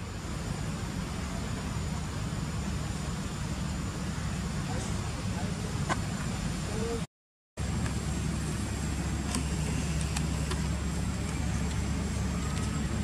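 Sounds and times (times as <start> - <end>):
high-pitched whine: 0.0 - 13.0
low outdoor rumble: 0.0 - 13.0.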